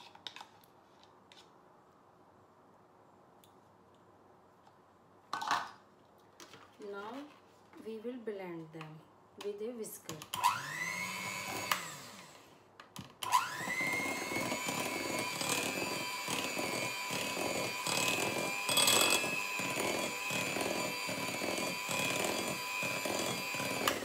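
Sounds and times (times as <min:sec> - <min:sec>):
electric hand mixer whisking: 0:10.4 - 0:12.4, 0:13.2 - 0:24.0.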